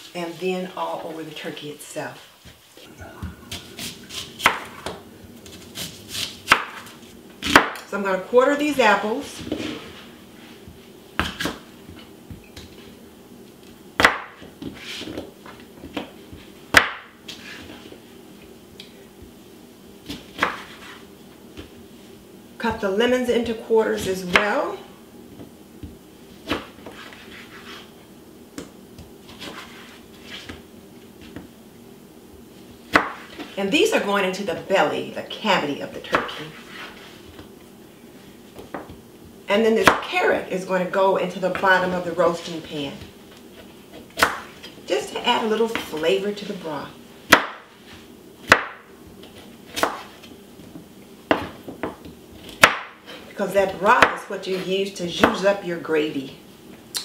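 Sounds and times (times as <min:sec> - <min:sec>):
knife chopping on cutting board: 0:03.5 - 0:07.8, 0:20.0 - 0:21.0, 0:32.9 - 0:33.5, 0:43.6 - 0:44.6, 0:47.3 - 0:47.7, 0:48.4 - 0:48.8, 0:49.7 - 0:50.3, 0:51.3 - 0:53.2.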